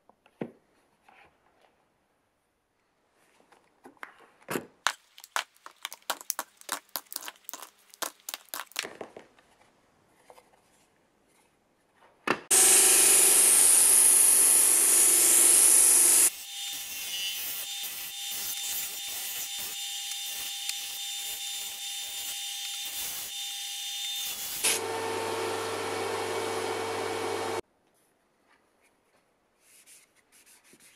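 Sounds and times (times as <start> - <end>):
disc sander grinding wood: 12.5 - 27.6.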